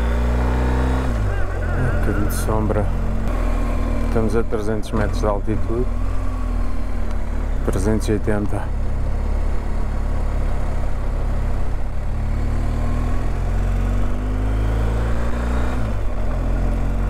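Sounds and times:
motorcycle engine climbing: 0.0s - 17.0s.

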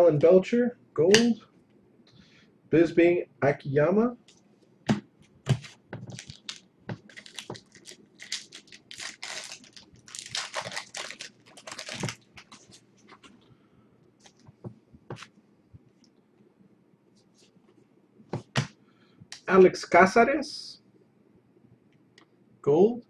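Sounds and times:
foil wrapper crinkling and tearing: 6.1s - 13.2s.

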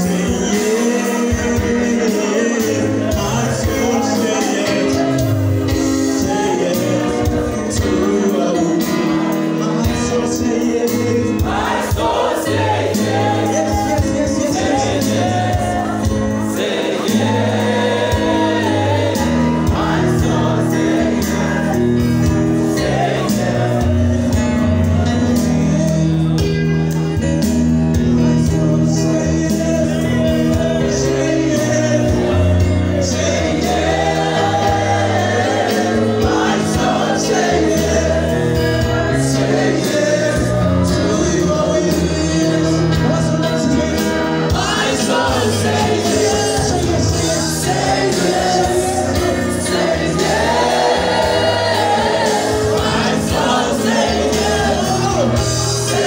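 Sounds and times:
congregation singing: 0.0s - 56.0s
sustained bass notes: 9.8s - 56.0s.

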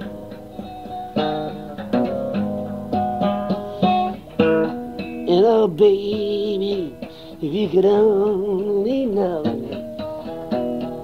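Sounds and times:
acoustic guitar strumming: 0.0s - 11.0s
person singing: 5.2s - 10.3s.

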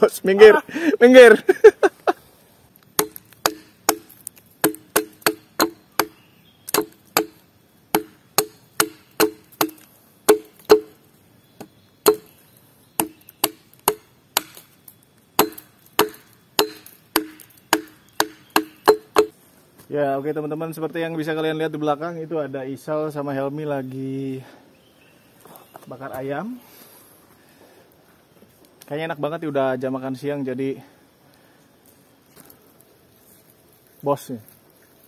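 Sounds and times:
blade chopping into wood: 3.0s - 11.0s, 11.6s - 12.4s, 13.0s - 14.7s, 15.4s - 19.3s.

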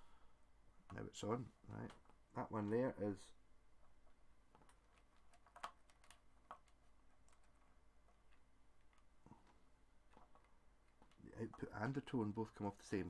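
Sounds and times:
faint small clicks and taps: 4.5s - 11.7s.

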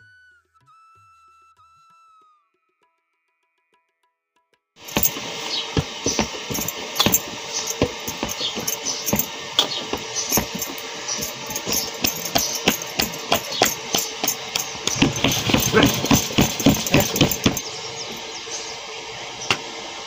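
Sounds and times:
bangles clinking: 4.8s - 18.3s.

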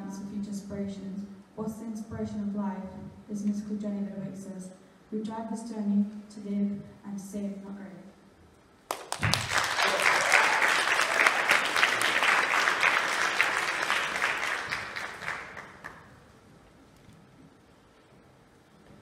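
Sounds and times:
audience applauding: 8.9s - 16.2s.

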